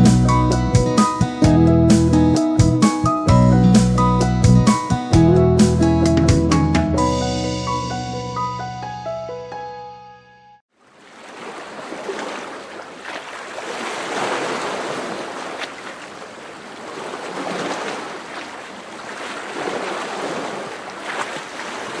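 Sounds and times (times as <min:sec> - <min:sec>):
water splashing: 0:10.7 - 0:22.0
water washing: 0:10.9 - 0:22.0.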